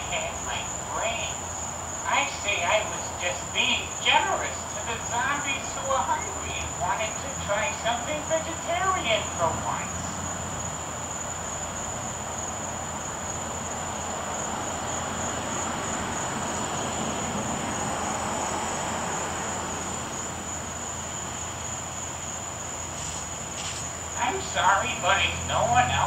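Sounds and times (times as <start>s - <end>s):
steady rushing hum: 0.0s - 12.4s
crickets trilling: 0.0s - 26.0s.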